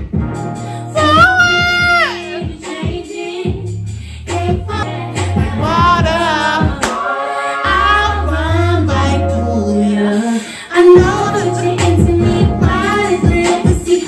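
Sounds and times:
bass and drums: 0.0s - 6.9s, 11.0s - 14.0s
woman singing r and b song: 0.8s - 14.0s.

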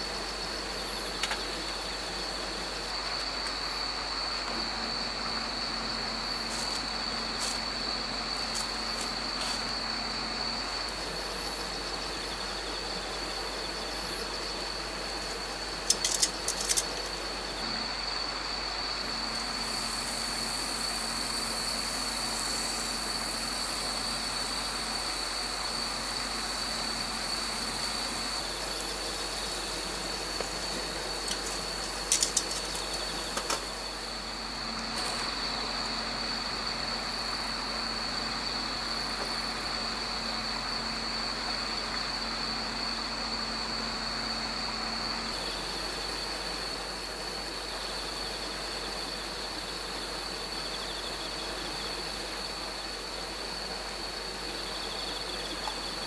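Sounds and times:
insects trilling: 0.0s - 56.0s
sharp clicks: 15.8s - 17.0s, 31.2s - 33.7s.

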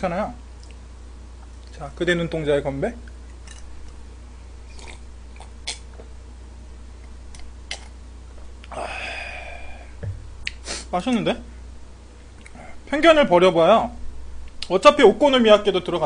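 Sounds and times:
low hum: 0.0s - 16.0s
sipping and swallowing: 4.7s - 6.1s
breathy exhale: 8.7s - 10.0s.

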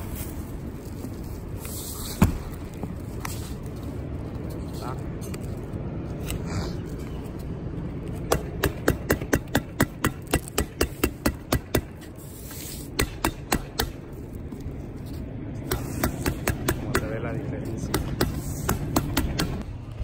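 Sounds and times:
hammer tacker strikes: 8.3s - 12.1s, 12.9s - 14.0s, 15.6s - 19.6s.

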